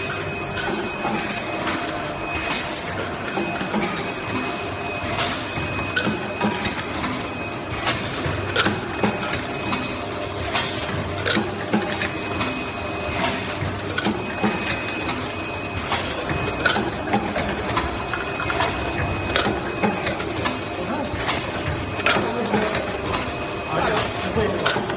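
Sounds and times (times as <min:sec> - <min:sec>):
machine clacks: 0:13.2 - 0:24.9.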